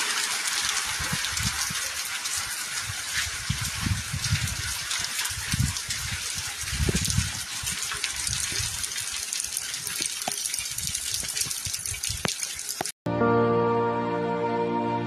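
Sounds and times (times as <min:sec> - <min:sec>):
steady rain falling: 0:00.0 - 0:12.9
drips and taps: 0:04.4 - 0:12.9
music: 0:13.1 - 0:15.0.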